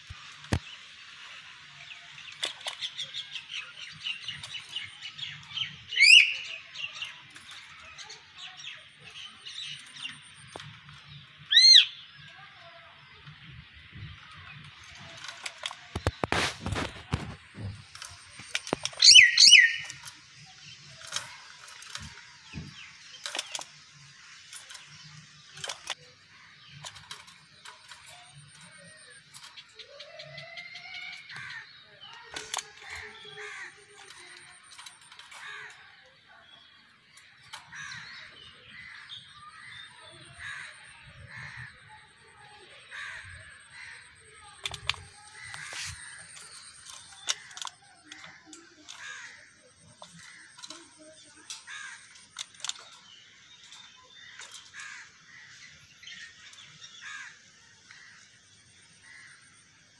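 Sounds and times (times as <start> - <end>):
myna calling: 15.9 - 20.1
clicks: 43.2 - 54.9.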